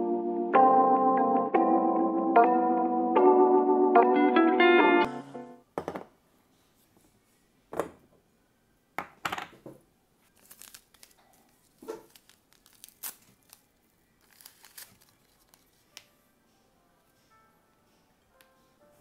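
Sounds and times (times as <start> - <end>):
wrapper tearing and crinkling: 10.2 - 16.0.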